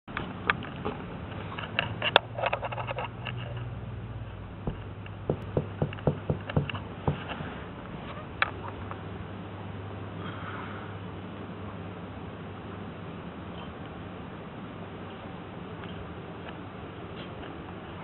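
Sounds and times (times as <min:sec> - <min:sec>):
soft thumps: 0:04.6 - 0:07.5.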